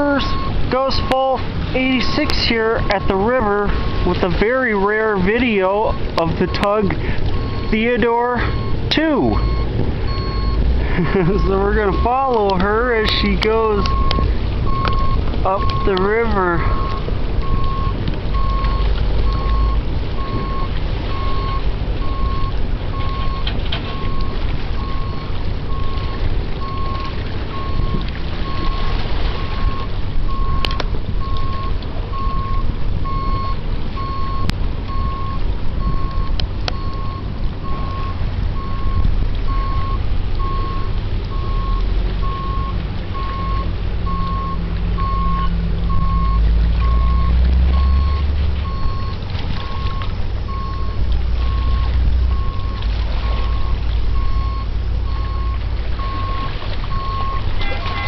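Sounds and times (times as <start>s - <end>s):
low rumble: 0.0s - 58.0s
electronic beeping: 7.4s - 10.6s, 11.6s - 28.8s.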